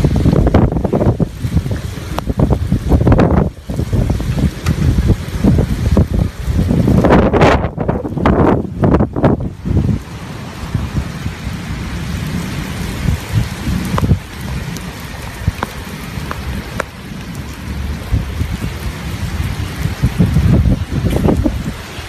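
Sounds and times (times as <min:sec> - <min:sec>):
heavy rain hissing: 0:00.0 - 0:22.0
wind rumbling on microphone: 0:00.0 - 0:22.0
raindrop ticks: 0:00.3 - 0:06.3, 0:12.0 - 0:21.8.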